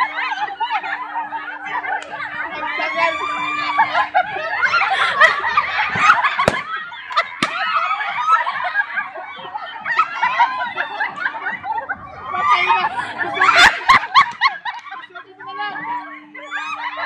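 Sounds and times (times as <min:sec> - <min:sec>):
women laughing loudly: 0:00.0 - 0:17.0
balloons bursting: 0:06.5 - 0:06.8.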